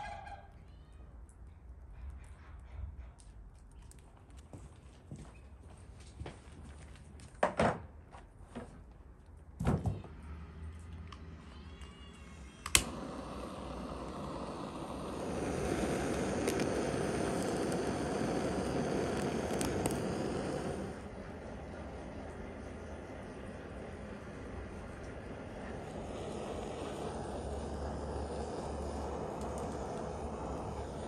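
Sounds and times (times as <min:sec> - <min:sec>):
blowtorch clicking alight: 0:12.6 - 0:21.1, 0:23.0 - 0:31.0
blowtorch flame hiss: 0:12.6 - 0:31.0.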